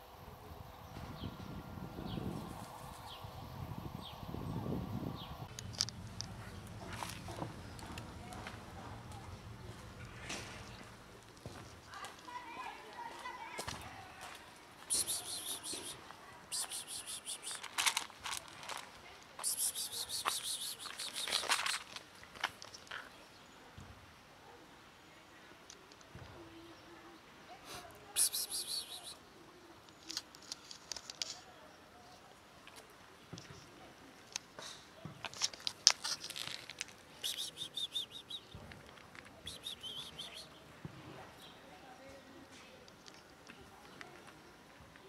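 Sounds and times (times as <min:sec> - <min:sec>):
cat crunching dry kibble: 0:05.5 - 0:08.4, 0:16.8 - 0:23.1, 0:35.2 - 0:38.1
high chirps: 0:14.9 - 0:17.6, 0:19.4 - 0:21.4, 0:28.2 - 0:29.2, 0:37.2 - 0:38.6, 0:39.4 - 0:40.6.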